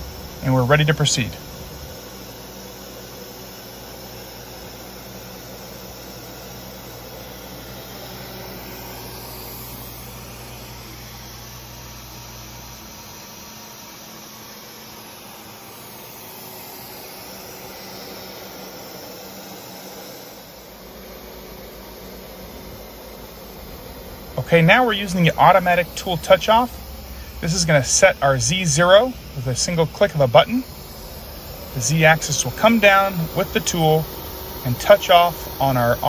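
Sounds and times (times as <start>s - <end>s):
low hum: 0.0s - 3.5s, 20.3s - 36.0s
vacuum pump running: 0.0s - 36.0s.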